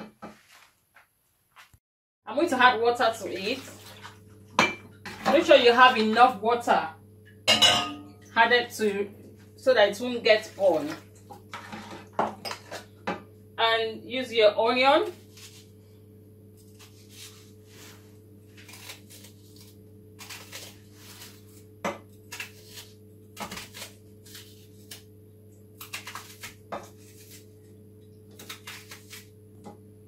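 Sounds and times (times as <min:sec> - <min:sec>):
steady low hum: 0:02.3 - 0:30.0
knife cutting onion: 0:15.2 - 0:15.8, 0:16.6 - 0:25.2, 0:25.8 - 0:27.6, 0:28.3 - 0:29.4.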